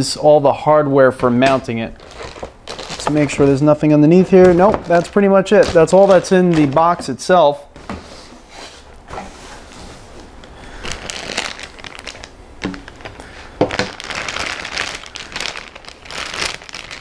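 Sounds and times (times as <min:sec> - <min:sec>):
plastic bag crinkling: 0:01.4 - 0:07.0, 0:10.1 - 0:17.0.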